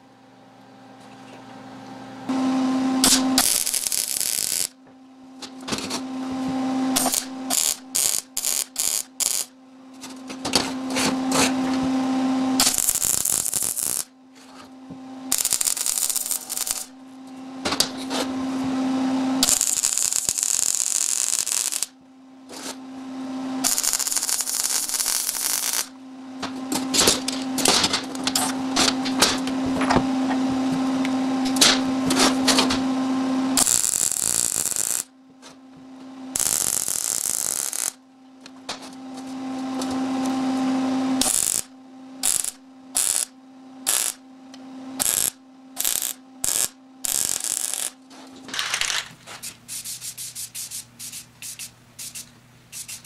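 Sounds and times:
welder low hum: 0.0 - 53.0
welding arc crackling: 3.0 - 4.8, 6.9 - 11.5, 12.6 - 14.1, 15.3 - 17.0, 19.4 - 22.7, 23.6 - 29.5, 33.6 - 35.1, 36.4 - 38.0, 41.2 - 44.2, 45.0 - 48.0, 48.8 - 53.0.

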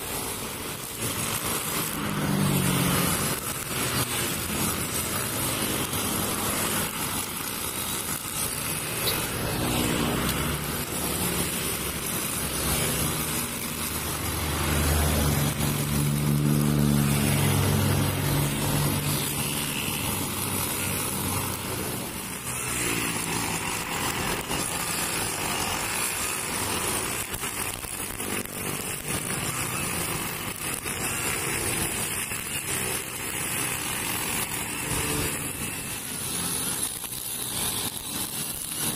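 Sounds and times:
brush cutter cutting grass: 0.0 - 38.9
road traffic passing: 0.0 - 38.9.

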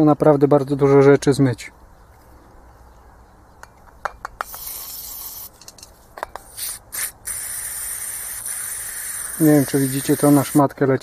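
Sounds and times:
aerosol spray hissing: 4.5 - 5.5, 6.5 - 10.6.

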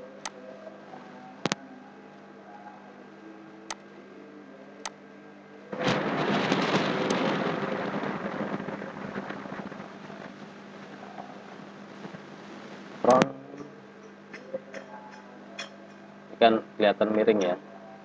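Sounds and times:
faint steady hum: 0.0 - 18.0
loud rush of noise: 5.7 - 13.3.

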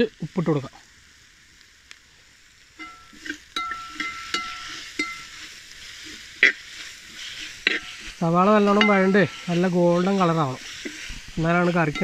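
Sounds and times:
onions sizzling in oil: 0.0 - 12.0
skimmer scraping metal pot: 2.8 - 12.0.

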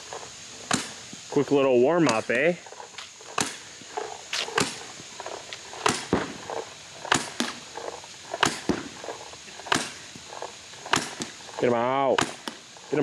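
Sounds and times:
paintball marker firing pops: 0.7 - 1.0, 3.4 - 3.6, 4.4 - 4.9, 5.8 - 6.4, 7.1 - 7.6, 8.4 - 8.9, 9.7 - 10.3, 10.9 - 11.4, 12.1 - 12.6.

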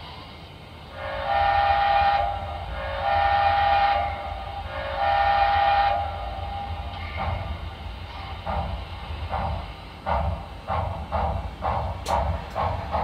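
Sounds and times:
model train steam whistle: 0.9 - 7.1.

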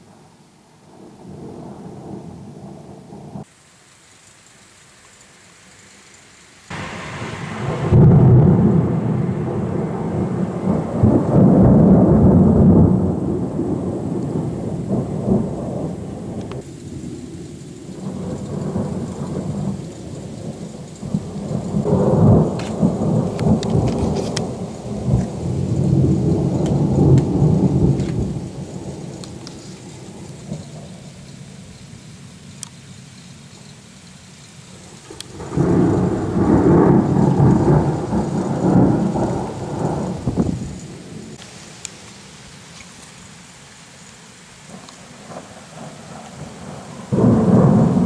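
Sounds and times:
thunder rolling: 0.9 - 3.5, 6.7 - 31.5, 34.8 - 41.4, 44.7 - 48.0.

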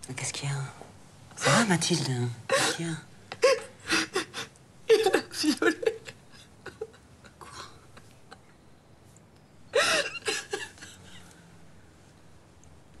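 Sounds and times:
woman sobbing: 2.5 - 8.5, 9.7 - 11.3.

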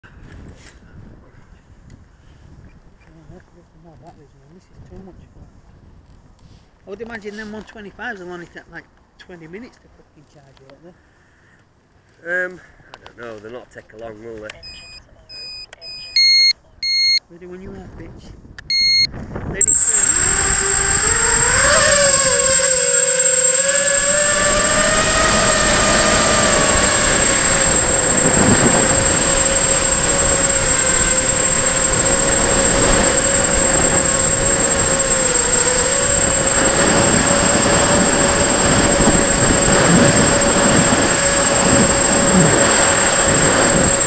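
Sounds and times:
thin high whistle: 18.7 - 44.0
wind rush: 19.2 - 44.0
drone motor whine: 19.6 - 44.0.

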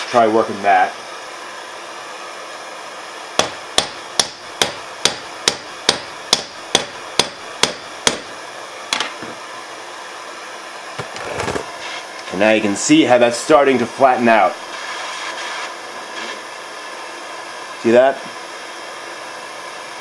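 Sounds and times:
hammer striking metal on anvil: 3.4 - 8.3.

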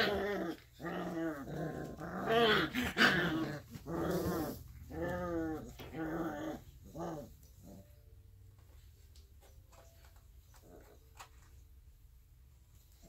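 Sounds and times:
puppies play growling: 0.0 - 8.1, 10.5 - 11.5.

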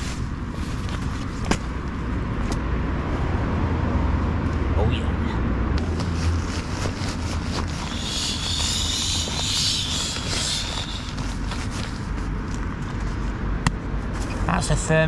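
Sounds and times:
nylon fabric rustling: 0.0 - 1.7, 5.8 - 13.2
low rumble of road traffic: 0.0 - 15.0.

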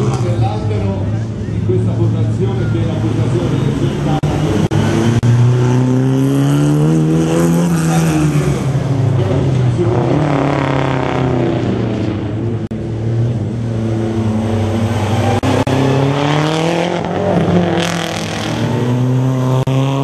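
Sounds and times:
rally car engine revving: 0.0 - 20.0.

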